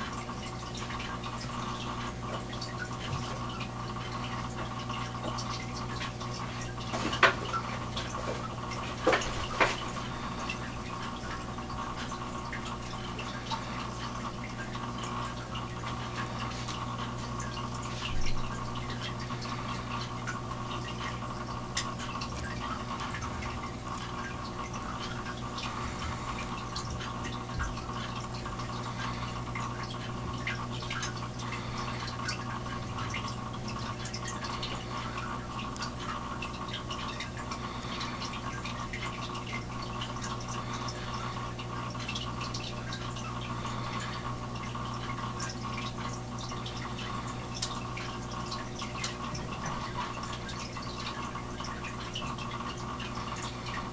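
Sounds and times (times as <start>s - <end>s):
steady hum: 0.0s - 53.9s
water trickling and dripping: 0.0s - 53.9s.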